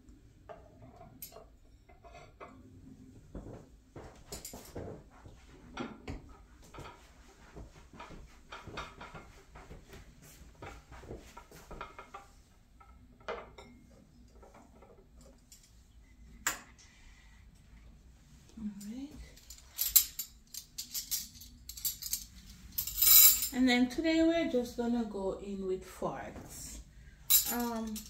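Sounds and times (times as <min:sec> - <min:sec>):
dishes clinking and knocking: 0:05.7 - 0:07.0, 0:07.9 - 0:09.8, 0:10.6 - 0:15.4.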